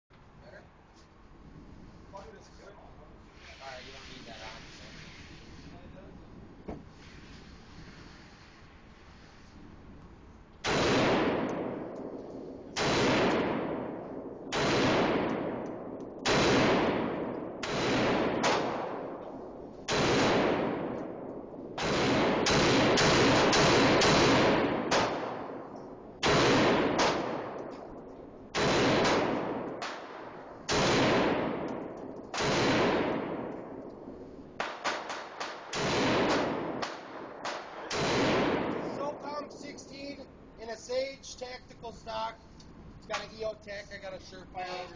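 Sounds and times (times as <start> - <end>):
rifle shots echoing indoors: 10.6 - 39.4.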